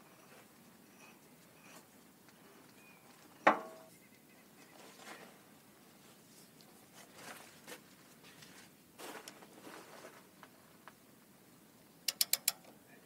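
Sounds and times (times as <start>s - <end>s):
faint scraping and rustling: 0.0s - 11.0s
sharp clicks: 12.0s - 12.7s.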